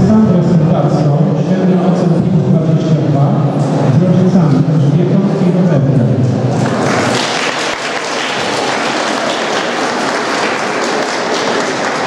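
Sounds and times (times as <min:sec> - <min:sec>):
audience clapping: 0:06.5 - 0:12.0.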